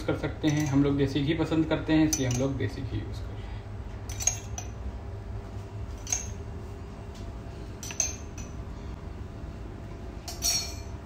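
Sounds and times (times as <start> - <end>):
steady low hum: 0.0 - 11.0
kitchenware clinking: 0.4 - 1.0, 2.0 - 2.6, 4.0 - 4.8, 6.0 - 6.5, 7.8 - 8.7, 10.2 - 11.0.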